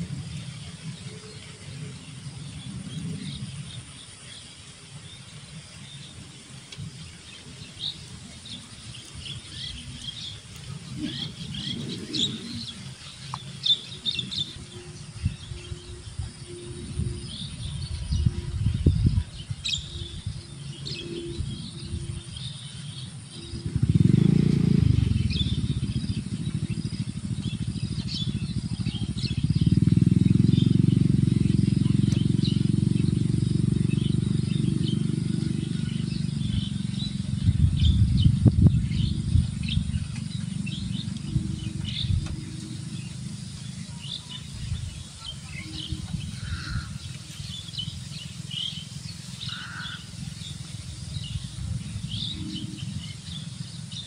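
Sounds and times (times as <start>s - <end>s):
low rumble on the microphone: 0.0s - 54.0s
small birds chirping: 0.0s - 54.0s.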